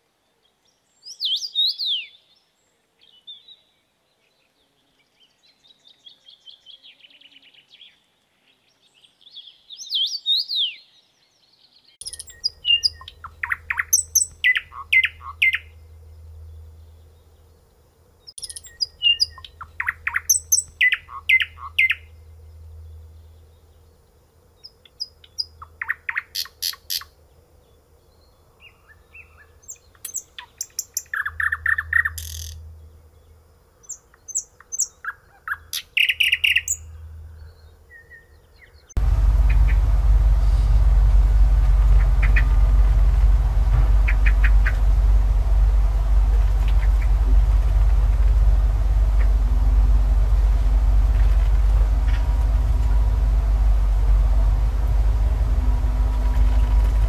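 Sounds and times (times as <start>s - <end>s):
thin bird chirping: 0.2s - 57.0s
nightingale singing: 1.0s - 2.4s, 8.8s - 11.2s, 12.0s - 27.3s, 28.0s - 56.9s
faint steady hum: 12.0s - 57.0s.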